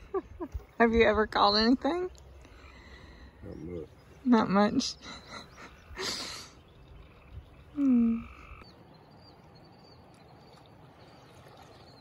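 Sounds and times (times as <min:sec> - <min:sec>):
frog croaking: 0:06.8 - 0:08.7.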